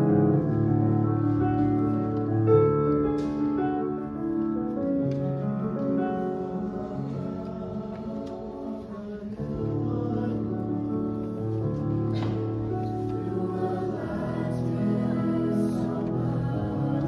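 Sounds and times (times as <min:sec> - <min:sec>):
digital piano: 0:00.0 - 0:17.0
choir singing: 0:06.2 - 0:17.0.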